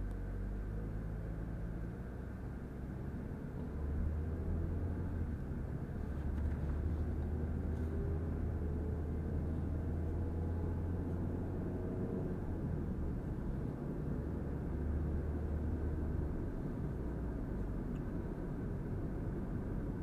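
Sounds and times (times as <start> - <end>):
car engine and tyre drone: 0.0 - 20.0.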